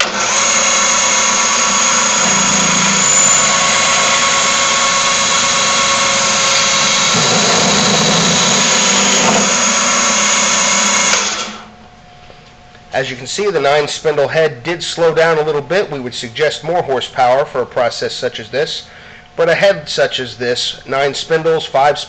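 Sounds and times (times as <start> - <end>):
drill press whining: 0.0 - 11.7.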